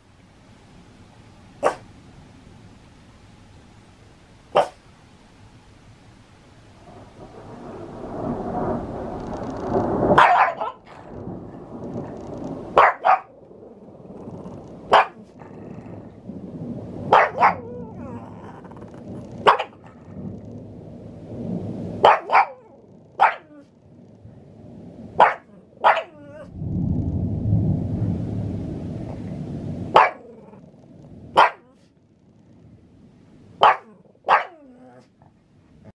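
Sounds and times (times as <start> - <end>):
dog barking: 1.6 - 1.9, 4.5 - 4.8, 10.2 - 11.1, 12.8 - 13.4, 14.9 - 15.4, 17.1 - 19.9, 22.0 - 23.7, 25.2 - 26.5, 29.9 - 30.6, 31.3 - 31.9, 33.6 - 35.1
low thunder rumble: 5.6 - 35.9.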